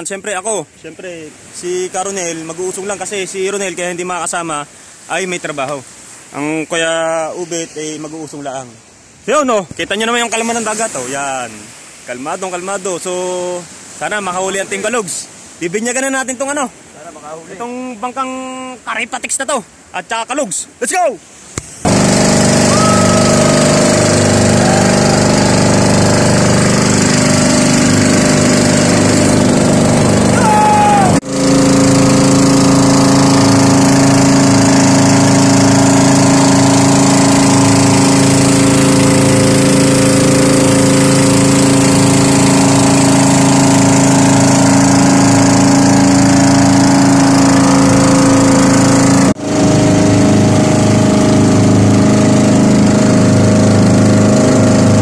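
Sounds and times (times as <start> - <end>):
boat engine running: 21.6 - 55.0.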